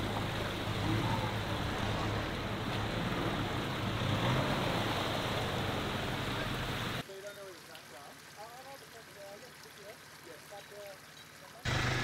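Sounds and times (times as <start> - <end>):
tyres churning through mud: 0.0 - 7.1, 9.8 - 12.0
vehicle engine under load: 11.7 - 12.0.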